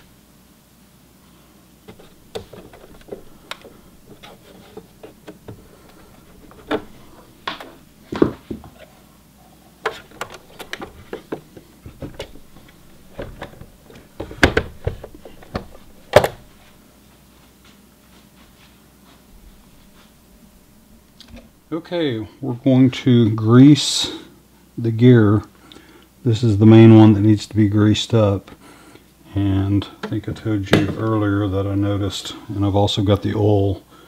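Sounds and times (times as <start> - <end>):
loud thunks on tabletop: 14.2 - 16.4.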